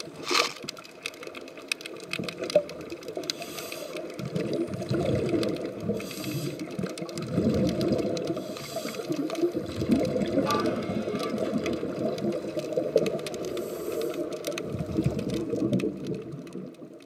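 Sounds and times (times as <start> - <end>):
exhaled bubbles gurgling: 0.0 - 17.0
regulator inhalation hiss: 3.3 - 4.0, 6.0 - 6.7, 8.4 - 9.2.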